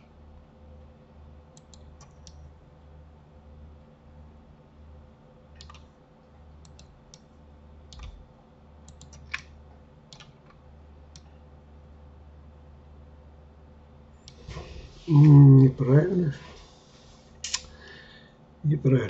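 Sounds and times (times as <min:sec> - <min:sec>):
faint low hum: 0:00.0 - 0:19.0
mouse and keyboard clicks: 0:05.6 - 0:05.9.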